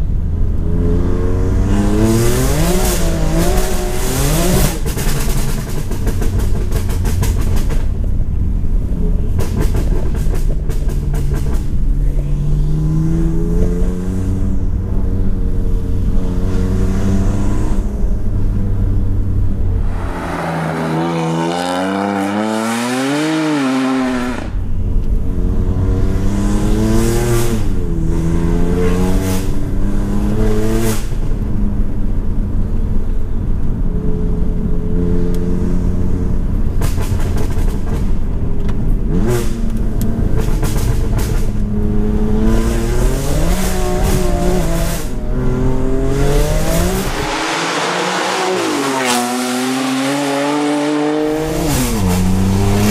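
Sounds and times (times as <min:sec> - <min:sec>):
car engine accelerating through gears: 0:00.5 - 0:08.1, 0:08.8 - 0:31.4, 0:34.3 - 0:52.9.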